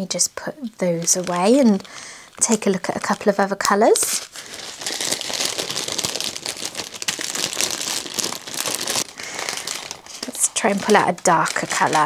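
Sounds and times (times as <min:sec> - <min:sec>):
plastic bags crinkling: 0:00.8 - 0:12.0.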